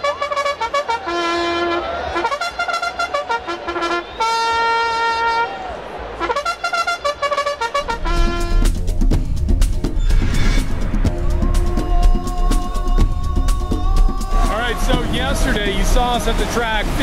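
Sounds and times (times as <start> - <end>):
solo trumpet bugle call: 0.0 - 8.7
bass-heavy music with a beat: 7.8 - 17.0.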